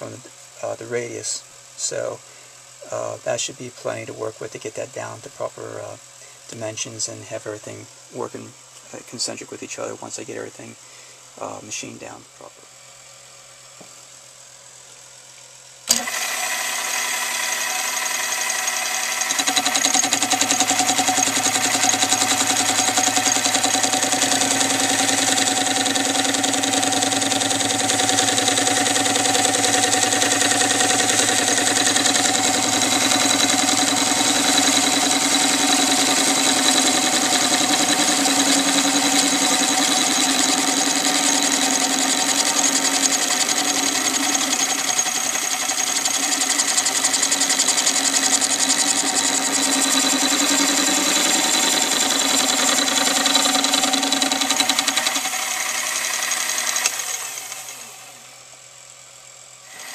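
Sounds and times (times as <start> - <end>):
lathe motor whining: 15.9 - 58.4, 59.6 - 59.9.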